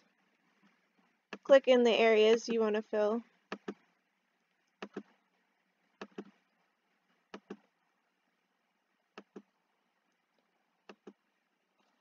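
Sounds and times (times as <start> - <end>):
computer mouse clicking: 3.5 - 3.8, 4.8 - 5.2, 6.0 - 6.4, 7.3 - 7.7, 9.2 - 9.5, 10.9 - 11.2.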